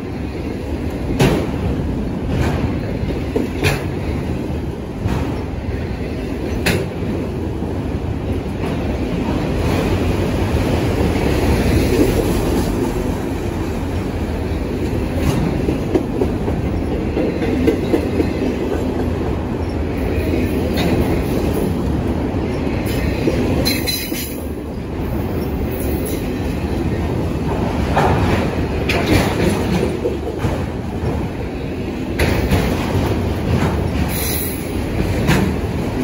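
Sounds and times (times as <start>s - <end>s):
steel wheels rumbling on rail: 0.0s - 36.0s
wheels clicking over rail joints: 0.9s - 5.6s.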